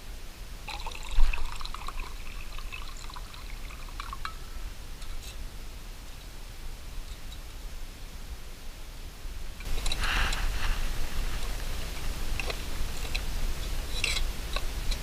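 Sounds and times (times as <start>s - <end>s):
liquid pouring into metal cup: 0.7s - 4.4s.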